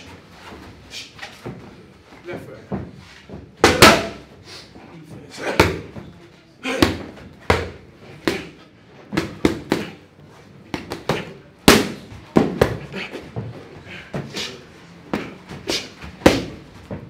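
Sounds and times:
boxing gloves slapping focus mitts: 0:03.6 - 0:04.2, 0:06.6 - 0:10.0, 0:10.6 - 0:13.5, 0:14.2 - 0:17.0.

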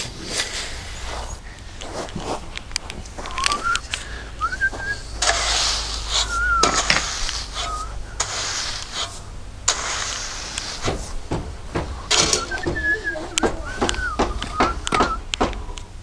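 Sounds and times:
rake scraping over gravel: 0:00.0 - 0:11.2, 0:12.0 - 0:13.1.

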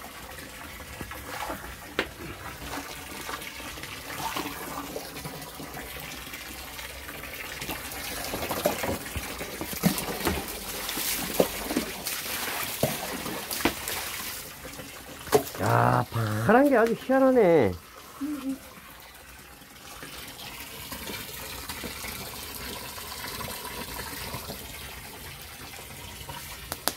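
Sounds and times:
hose water running into basin: 0:00.0 - 0:26.9
knocks and splashes: 0:08.2 - 0:15.7.

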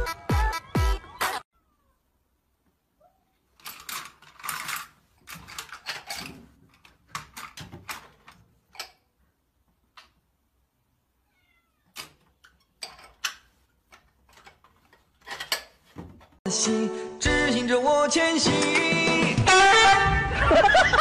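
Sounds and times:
cat meowing: 0:01.6 - 0:02.1, 0:11.2 - 0:12.0.

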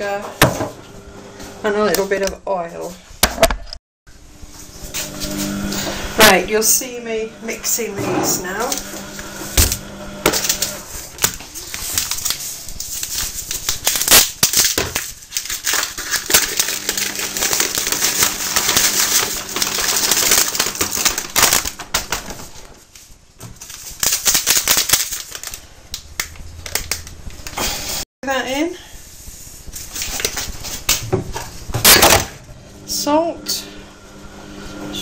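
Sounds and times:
packaging crackling and rustling: 0:10.4 - 0:27.6.

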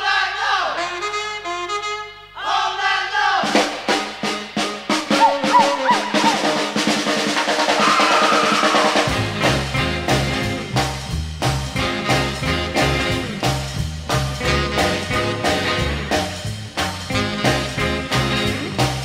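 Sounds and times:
rockabilly band music: 0:00.8 - 0:02.1, 0:03.4 - 0:19.0
drums: 0:03.2 - 0:19.0
walking bass line: 0:05.0 - 0:07.0, 0:09.1 - 0:19.0.

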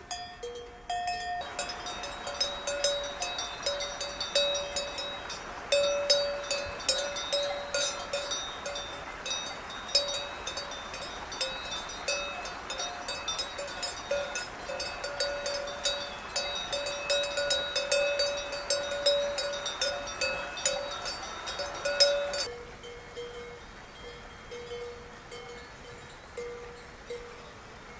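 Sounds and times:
cowbell clanking: 0:00.0 - 0:27.5.

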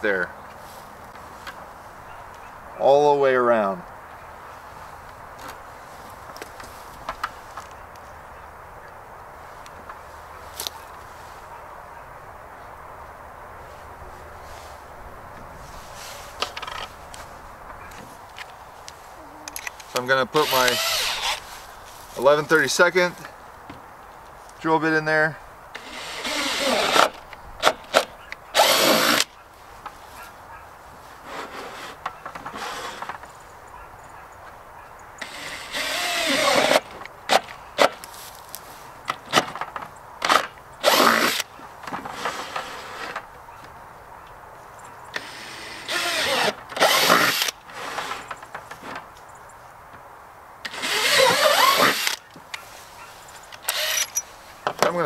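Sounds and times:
faint scattered noises: 0:00.0 - 0:55.0
drill boring through plastic: 0:20.4 - 0:21.4, 0:25.8 - 0:27.1, 0:28.6 - 0:29.2, 0:35.2 - 0:36.8, 0:45.2 - 0:48.2, 0:50.7 - 0:52.2, 0:53.7 - 0:54.2.

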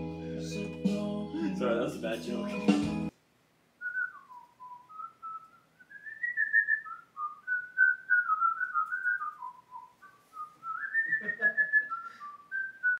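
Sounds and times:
man whistling a tune: 0:03.8 - 0:12.9.

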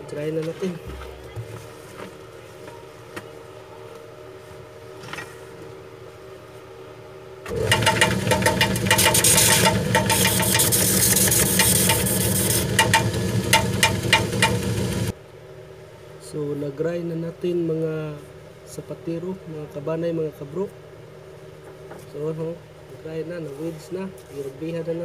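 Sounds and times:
grinding machine humming: 0:07.5 - 0:15.2
sole grinding with scraping clicks: 0:08.4 - 0:14.6.

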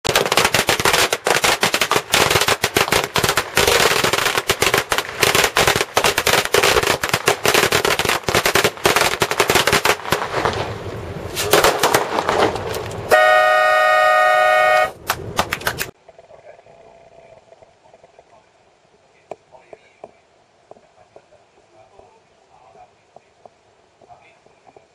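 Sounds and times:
firecrackers crackling: 0:00.0 - 0:16.0
horn sounding: 0:13.1 - 0:15.0.

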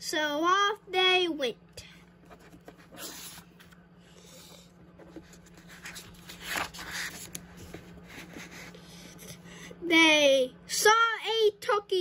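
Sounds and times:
steady low hum: 0:00.0 - 0:12.0
book pages turning: 0:02.1 - 0:09.2.

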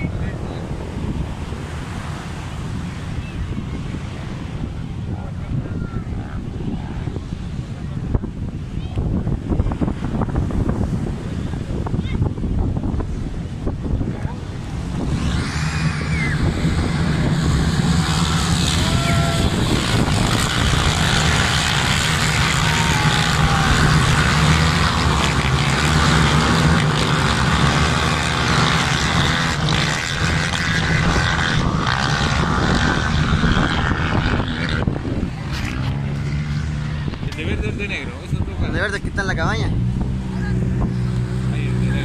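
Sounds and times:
quad bike engines droning: 0:00.0 - 0:42.0.

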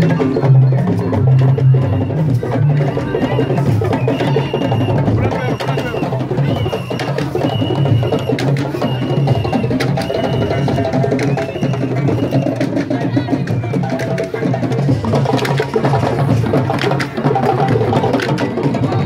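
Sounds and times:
hand drums in fast rhythm: 0:00.0 - 0:19.0.

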